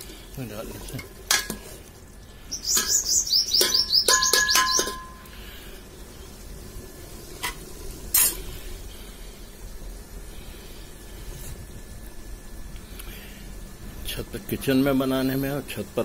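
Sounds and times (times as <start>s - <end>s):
small bird chirping: 2.4s - 5.2s
ladle knocking against metal pot: 3.6s - 5.2s.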